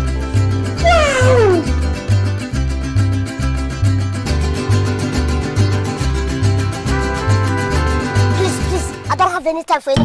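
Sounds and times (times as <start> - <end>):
cat meowing: 0.8 - 1.8.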